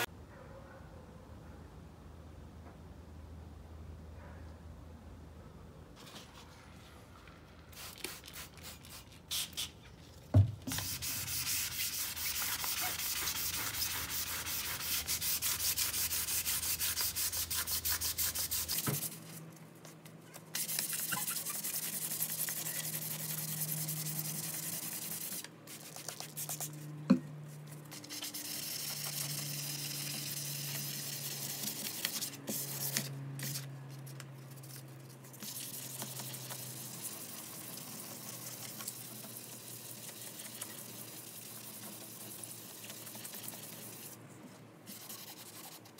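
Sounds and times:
sanding pad rasping on saw blade: 10.7s - 19.1s, 20.6s - 25.5s.

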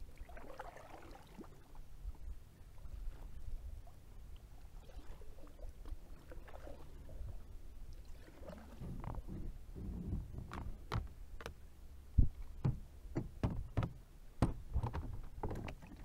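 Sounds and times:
paddle splashing in water: 0.0s - 1.7s, 4.6s - 11.2s
low steady rumble: 0.0s - 16.0s
paddle knocks: 8.6s - 11.6s, 12.2s - 16.0s.

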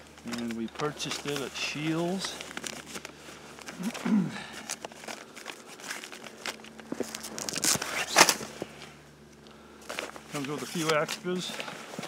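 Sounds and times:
nylon bag and paper rustling: 0.0s - 8.8s, 9.8s - 12.0s.

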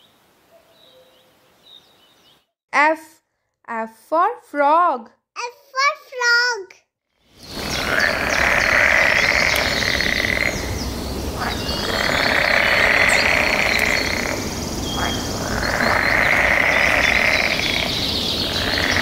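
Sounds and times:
high frog chirps: 7.2s - 19.0s
frog trilling call: 7.3s - 19.0s.

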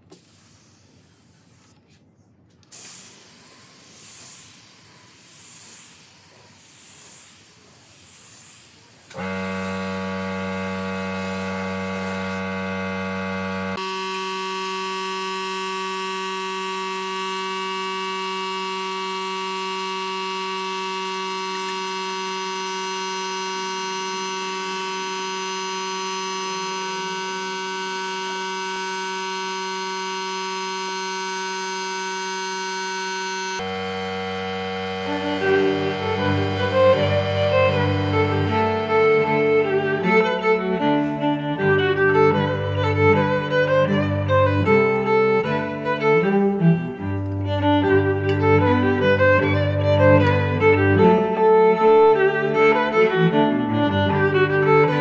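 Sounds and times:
spray gun hissing: 0.1s - 1.7s, 2.7s - 13.8s, 33.6s - 40.2s.

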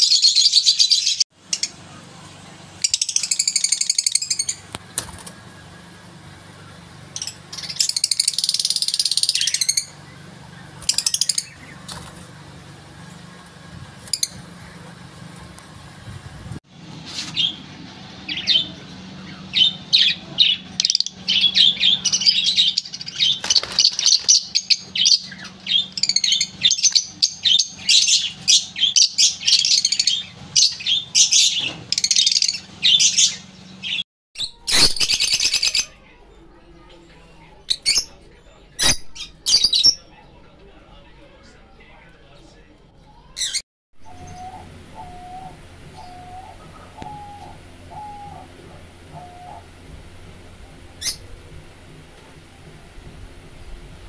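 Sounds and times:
lovebirds chirping: 0.0s - 16.2s, 17.0s - 36.0s, 43.4s - 49.8s
low hum: 44.0s - 54.0s.

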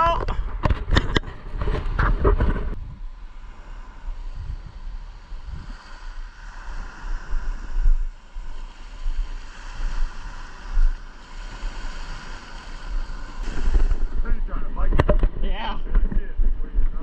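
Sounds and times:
wind buffeting microphone: 0.0s - 17.0s
small waves breaking on beach: 2.8s - 15.8s.

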